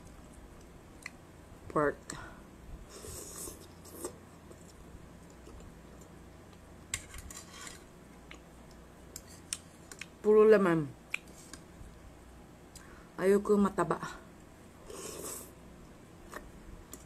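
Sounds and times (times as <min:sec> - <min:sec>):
person slurping noodles: 0:02.9 - 0:04.2, 0:14.8 - 0:15.6.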